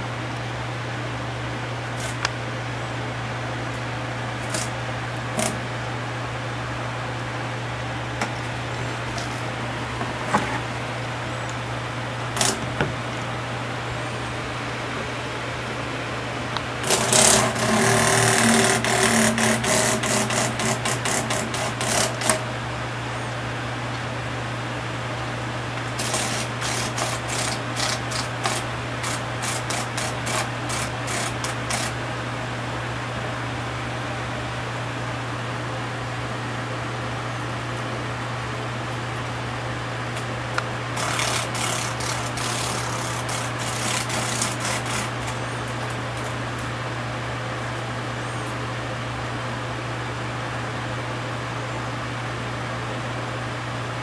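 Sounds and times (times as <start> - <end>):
cicada rasping buzz: 16.8 - 22.5, 25.8 - 32.0, 40.9 - 46.5.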